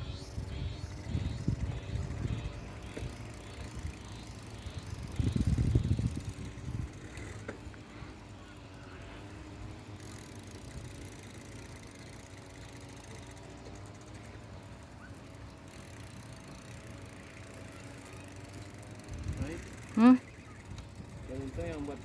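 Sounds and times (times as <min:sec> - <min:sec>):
wind buffeting microphone: 0:00.0 - 0:08.2, 0:20.5 - 0:22.0
steady low hum: 0:00.0 - 0:22.0.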